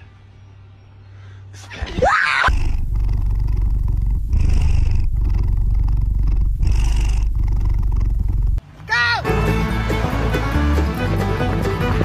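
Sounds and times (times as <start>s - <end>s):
cat purring loudly: 2.5s - 8.6s.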